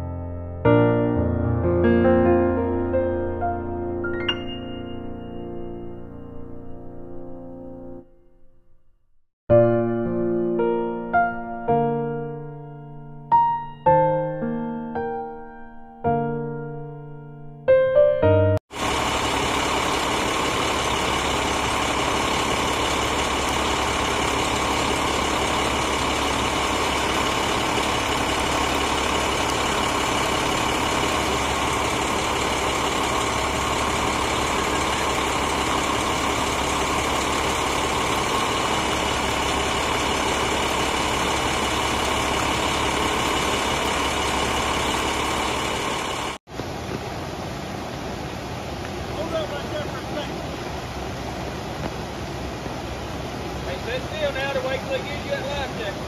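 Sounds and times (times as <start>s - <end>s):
vehicle engine idling: 18.7s - 56.0s
steady whine: 18.8s - 46.4s.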